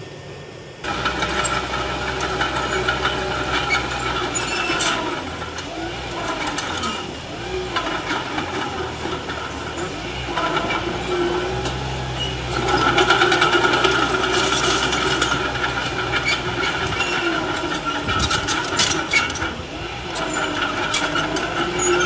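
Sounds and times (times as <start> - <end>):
metallic whine: 0.0 - 22.0
bulldozer diesel engine under load: 0.8 - 22.0
clanks from steel tracks: 0.8 - 22.0.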